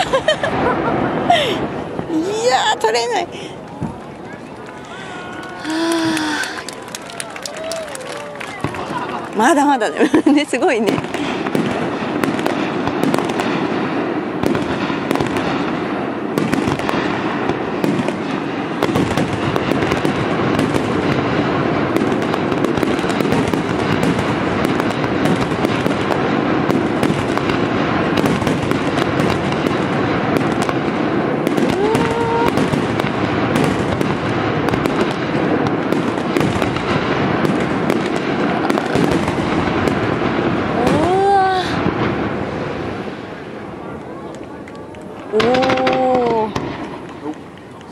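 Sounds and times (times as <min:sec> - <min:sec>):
fireworks bangs and crackling: 0:00.0 - 0:47.9.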